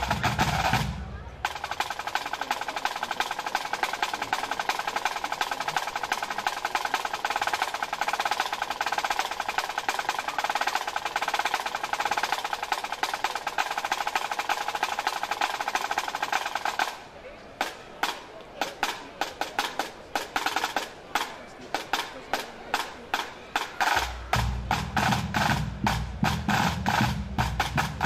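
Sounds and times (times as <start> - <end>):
fast snare drumming: 0.0 - 17.0, 17.6 - 28.0
tenor and bass drums: 0.0 - 17.0, 22.7 - 28.0.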